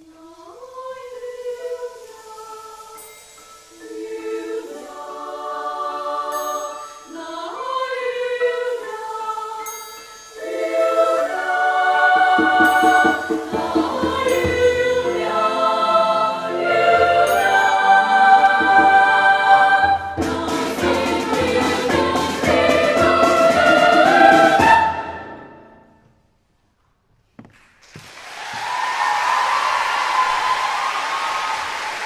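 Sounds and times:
girls' choir singing: 0.1s - 25.8s
piano accompaniment: 10.2s - 25.8s.

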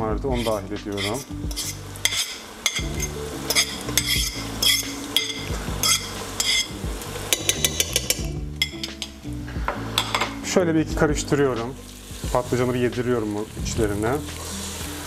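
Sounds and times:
food sizzling in oil: 0.0s - 15.0s
fork scraping a plate: 0.4s - 6.8s.

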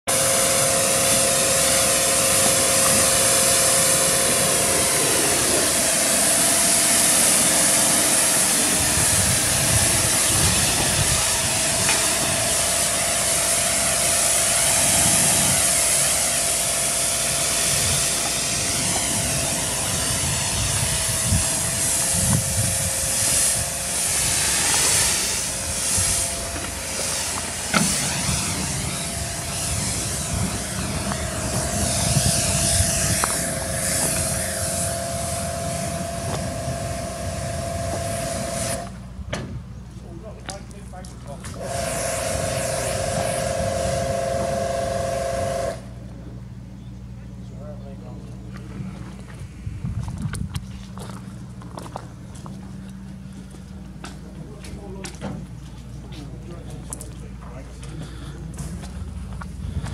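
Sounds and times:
pressure washer spraying metal: 0.1s - 39.0s, 40.6s - 46.0s
washer pump hum: 0.1s - 39.8s, 41.3s - 46.0s.

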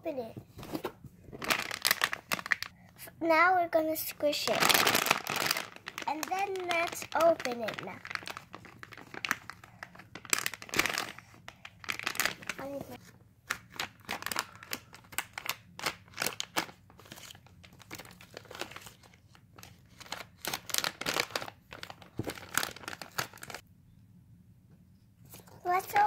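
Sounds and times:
plastic packaging crackling: 1.3s - 2.8s, 4.2s - 23.6s, 25.7s - 26.0s.

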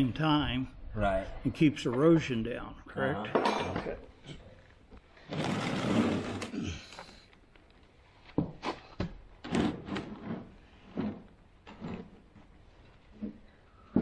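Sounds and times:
rough scrape on wood: 5.2s - 6.5s, 9.5s - 13.5s
short knocks and scrapes: 8.3s - 14.0s.

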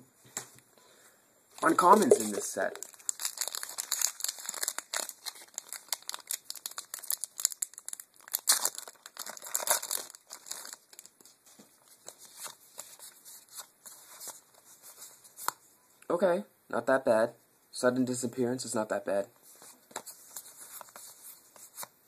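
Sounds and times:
foil wrapper crinkling and tearing: 1.6s - 12.6s
cards rustling: 1.6s - 15.6s, 19.5s - 21.9s.

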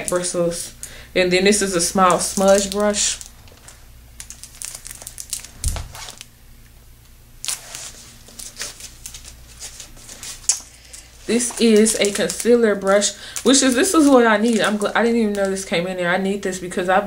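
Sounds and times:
plastic packaging crinkling: 1.4s - 6.3s, 7.4s - 15.8s
low thump: 5.6s - 6.0s.

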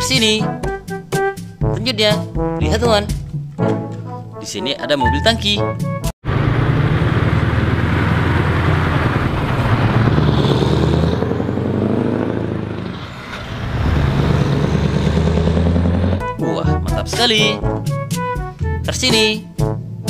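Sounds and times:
truck diesel engine running: 6.2s - 16.4s.

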